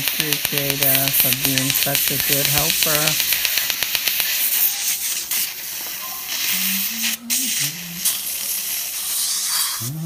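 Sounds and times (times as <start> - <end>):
dental laser rapid clicking: 0.0 - 4.8
air-water spray hissing: 0.0 - 10.0.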